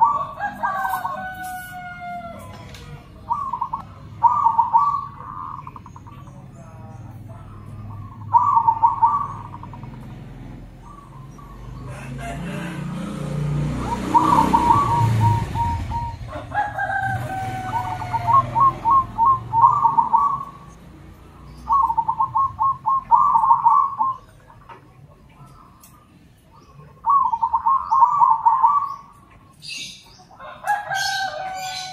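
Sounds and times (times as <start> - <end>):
drawn-out dove call: 0.0 - 2.5, 3.2 - 6.2, 7.9 - 10.1, 10.8 - 20.8, 21.7 - 24.7, 26.9 - 29.8
doves cooing: 0.0 - 31.9.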